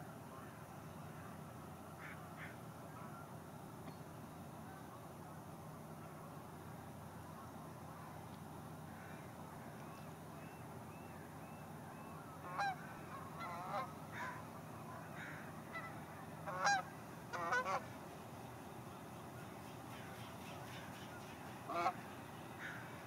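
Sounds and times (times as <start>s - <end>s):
faint low hum: 0.0s - 23.0s
waterbirds calling harshly: 19.5s - 23.0s.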